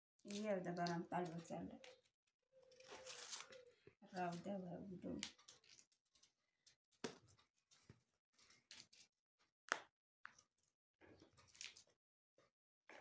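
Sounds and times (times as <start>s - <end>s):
bean pods snapping: 0.3s - 2.0s, 2.6s - 4.4s.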